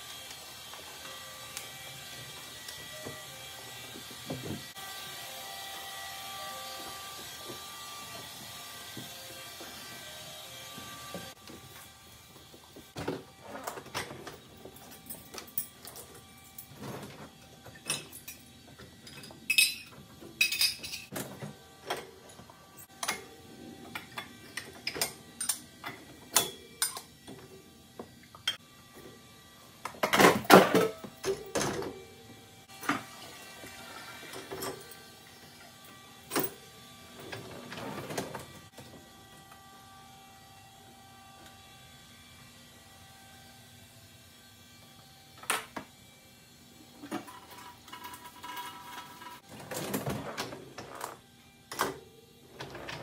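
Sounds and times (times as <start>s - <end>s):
cutlery and dishes clinking: 19.1s - 21.1s.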